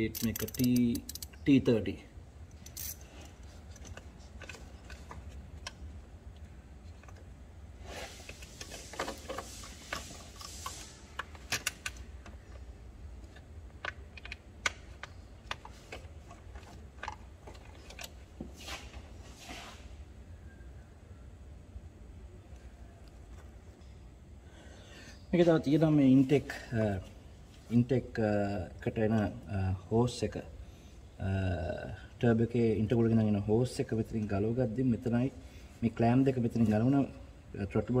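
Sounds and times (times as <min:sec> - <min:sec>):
hand tools clicking and clinking: 0:00.0 - 0:01.4, 0:02.5 - 0:05.7
low steady hum: 0:00.0 - 0:38.0.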